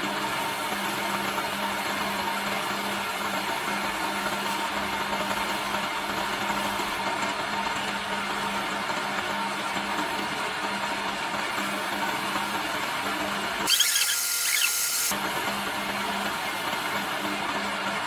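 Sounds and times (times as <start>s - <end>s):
chisel cutting spinning wood: 0.0s - 18.0s
wood lathe motor humming: 13.6s - 15.2s.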